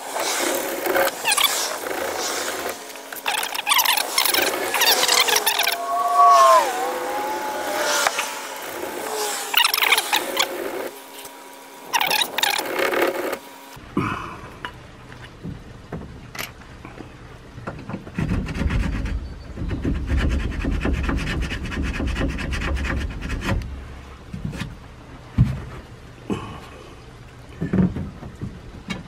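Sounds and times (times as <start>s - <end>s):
hand saw cutting plastic pipe: 0.0s - 5.6s, 18.2s - 23.6s.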